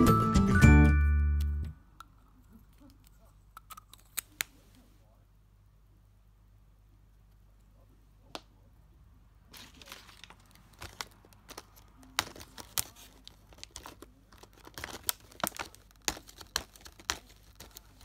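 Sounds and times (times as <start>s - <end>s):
plastic film crinkling: 9.5s - 18.0s.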